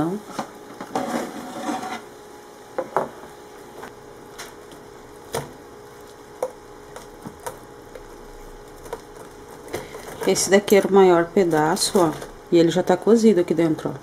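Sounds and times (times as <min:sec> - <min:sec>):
knife and fork scraping rack: 0:00.9 - 0:02.1.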